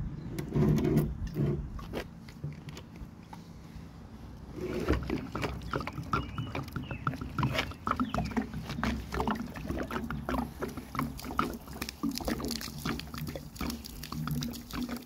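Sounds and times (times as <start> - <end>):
water glugging from bottle: 4.6 - 15.0
water splashing on concrete: 4.6 - 15.0.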